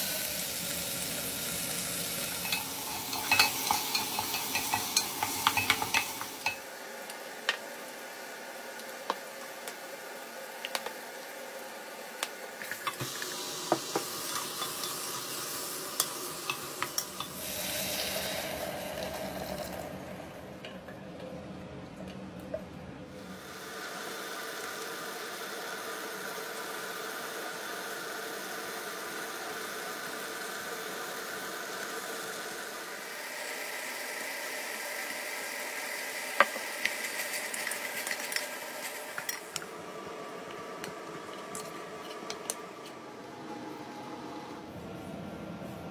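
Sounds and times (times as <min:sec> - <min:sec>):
steady hum and hiss: 0:00.0 - 0:45.9
utensils tapping metal pot: 0:02.4 - 0:06.6.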